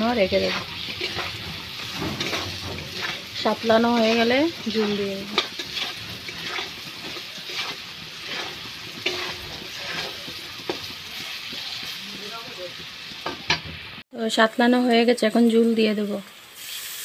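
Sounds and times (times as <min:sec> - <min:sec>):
spatula scraping pan: 0:00.0 - 0:12.2
vegetables sizzling in oil: 0:00.0 - 0:17.0.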